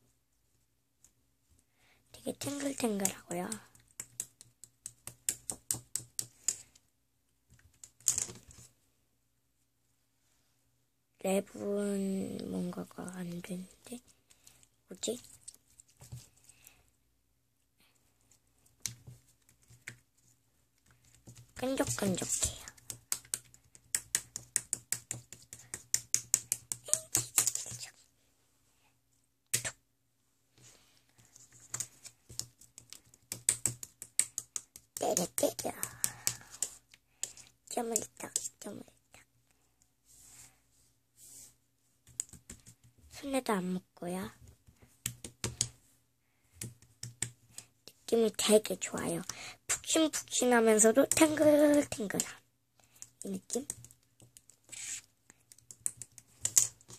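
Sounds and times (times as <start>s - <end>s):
plastic spoon patting slime: 2.3s - 6.7s, 20.8s - 27.9s, 31.4s - 38.7s, 42.1s - 43.0s, 45.0s - 45.8s, 49.0s - 56.9s.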